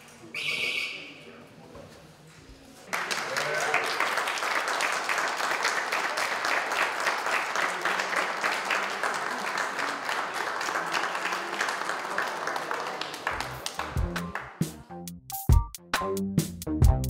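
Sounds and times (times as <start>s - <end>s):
audience applauding: 2.9s - 14.7s.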